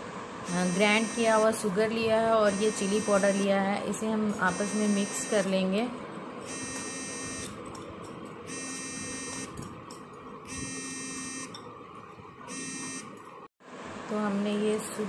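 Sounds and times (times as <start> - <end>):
electronic buzzer beeping: 0.5 - 1.6, 2.5 - 3.5, 4.5 - 5.5, 6.4 - 7.6, 8.5 - 9.6, 10.5 - 11.6, 12.5 - 13.2.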